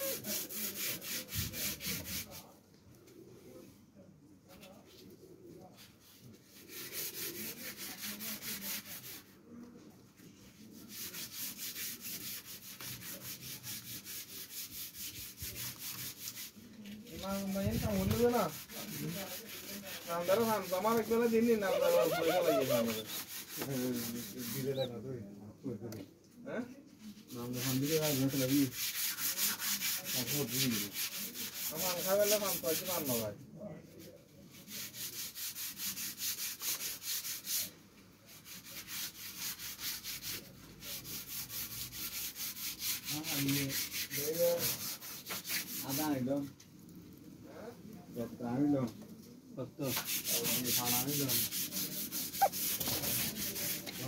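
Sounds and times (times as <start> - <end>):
hissy rasping scraping: 10.9 - 25.0, 49.9 - 54.0.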